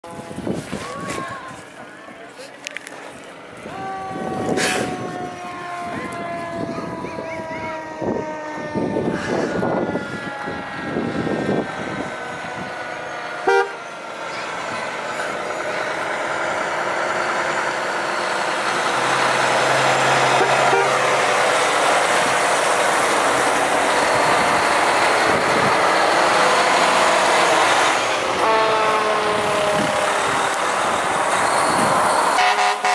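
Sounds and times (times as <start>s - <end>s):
fire engine diesel engine: 0.0s - 32.9s
siren warning tone: 4.0s - 14.0s
fire engine horn toot: 4.1s - 7.2s, 12.9s - 13.9s, 19.6s - 21.7s, 28.4s - 30.6s, 31.5s - 32.9s.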